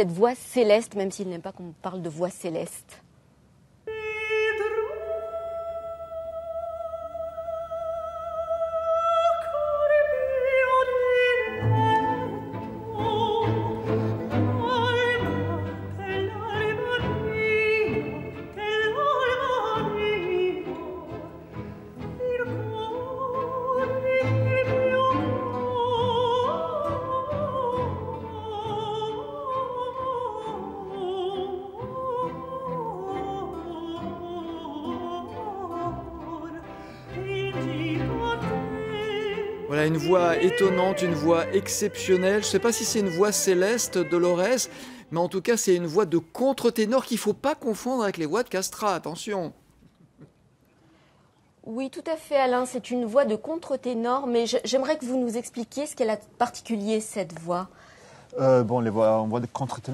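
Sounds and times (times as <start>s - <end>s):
countertenor singing: 4.5s - 49.6s
string orchestra: 9.3s - 49.0s.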